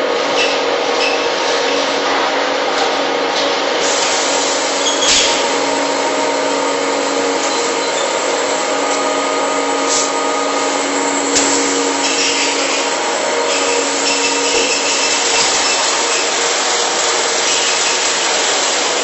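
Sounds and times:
packing machine humming: 1.8 - 19.0
sharp machine clacks: 11.4 - 19.0.

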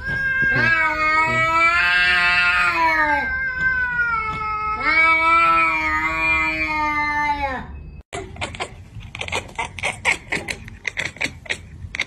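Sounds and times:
cat yowling: 0.0 - 7.7.

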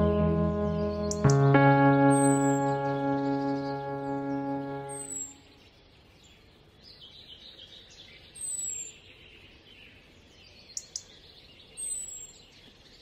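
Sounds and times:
high thin descending bird call: 0.0 - 5.4
soft bird chatter: 5.1 - 13.0.

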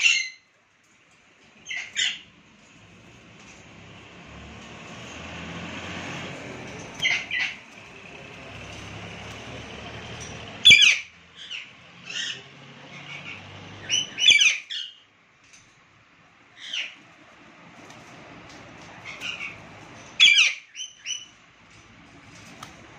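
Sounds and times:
parakeets squawking: 0.0 - 0.5, 1.6 - 2.3, 6.1 - 15.0, 16.5 - 17.1, 18.1 - 21.4.

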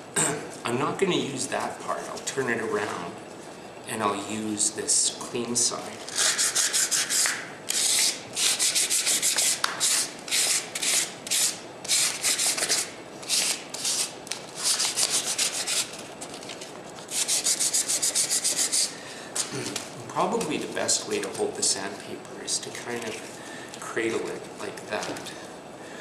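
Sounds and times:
sandpaper scratching on plaster: 6.1 - 16.0, 17.1 - 18.9.

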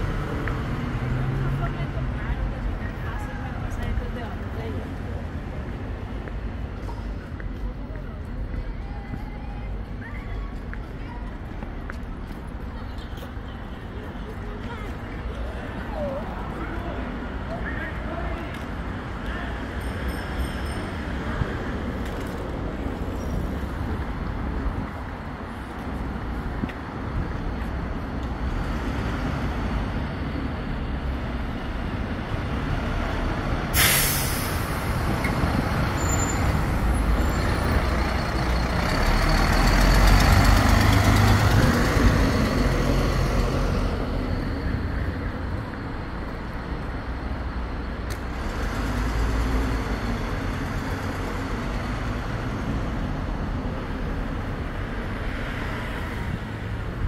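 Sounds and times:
bus engine rumbling: 0.0 - 17.6, 18.5 - 57.0
air brakes hissing: 33.7 - 34.9.

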